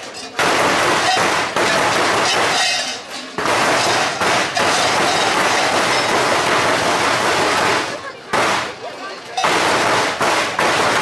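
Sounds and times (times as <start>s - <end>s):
large cowbells clanging: 0.0s - 6.7s, 9.2s - 9.7s.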